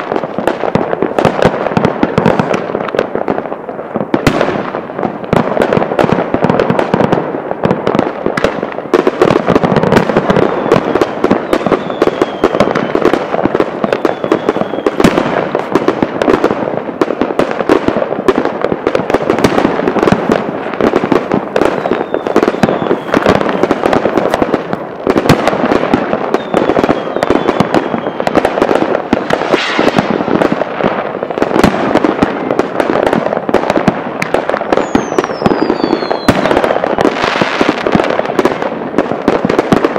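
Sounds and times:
fireworks bangs and crackling: 0.0 - 39.9
falling whistle: 11.4 - 12.7, 14.0 - 15.0, 21.9 - 23.6, 34.8 - 36.3.

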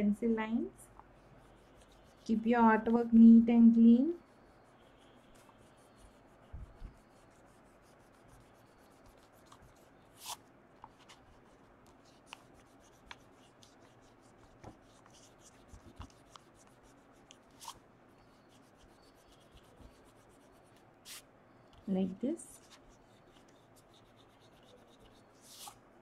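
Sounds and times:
eraser rubbing on paper: 1.1 - 2.9, 3.8 - 21.2, 22.5 - 25.8.

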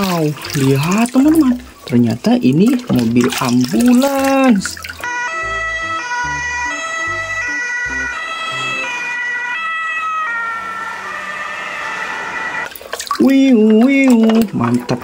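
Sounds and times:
ambulance siren: 5.0 - 12.8.

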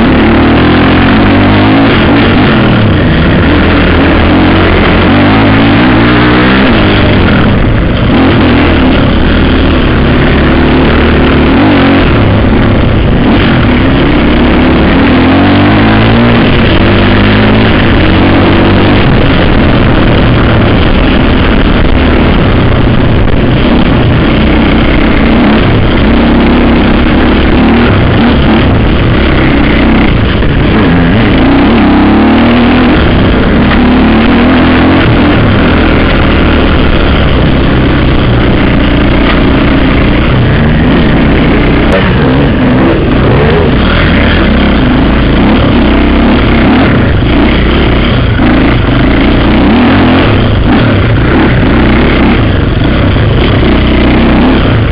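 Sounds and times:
dirt bike engine revving: 0.0 - 54.9.

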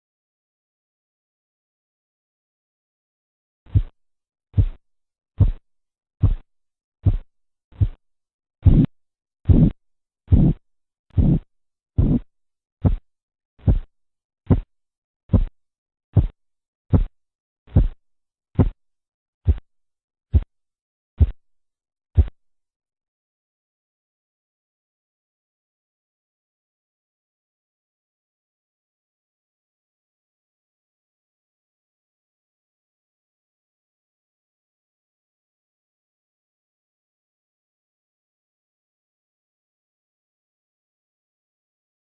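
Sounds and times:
pulse thumps: 4.6 - 4.8, 5.4 - 5.6, 6.2 - 6.4, 7.0 - 7.2, 8.6 - 8.9, 9.5 - 10.6, 11.2 - 11.4, 12.0 - 12.2, 13.6 - 13.9, 14.5 - 14.7, 17.7 - 18.0.

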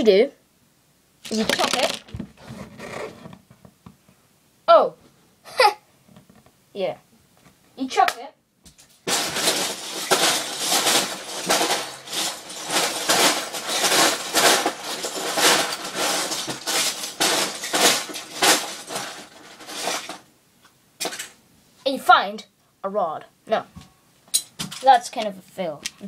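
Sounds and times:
plastic bricks clattering: 1.2 - 2.2, 9.1 - 20.2.

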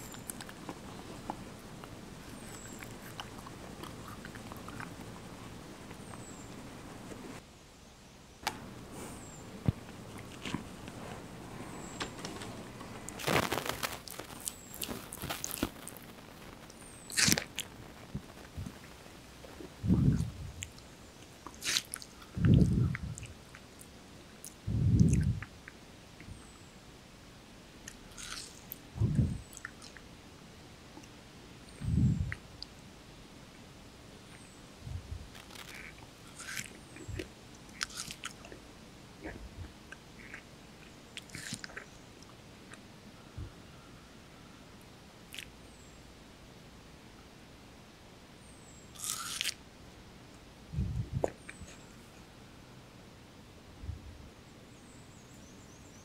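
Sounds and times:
monkey crunching watermelon: 0.0 - 7.4, 8.5 - 23.6, 27.9 - 30.0, 35.3 - 38.6, 39.2 - 41.9, 49.0 - 49.6.

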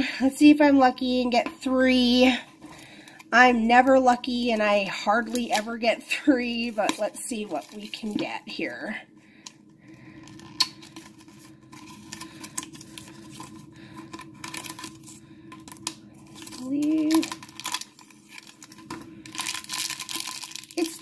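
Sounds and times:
foil bag handled: 6.5 - 8.4, 10.3 - 21.0.

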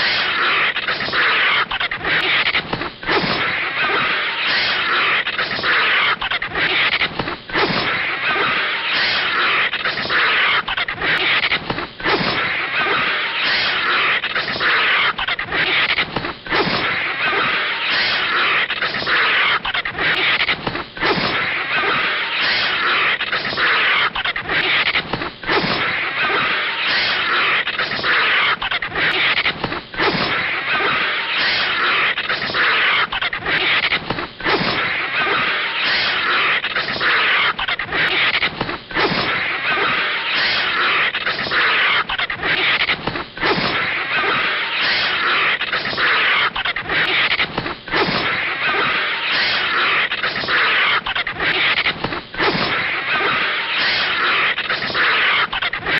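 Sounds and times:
snake and vulture fighting scuffle: 0.0 - 55.9.

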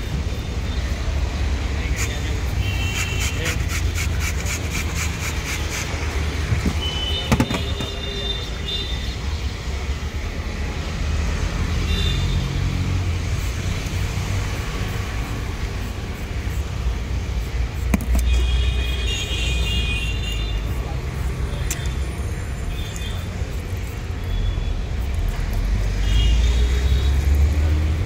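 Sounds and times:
road traffic rumble: 0.0 - 28.0
hand grater scraping: 2.8 - 7.8
sharp knocks: 6.5 - 8.0.

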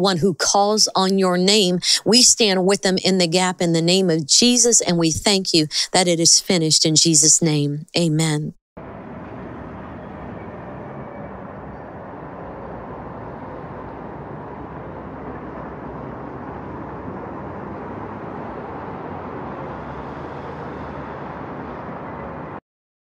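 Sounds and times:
traffic rumble: 8.2 - 22.6.

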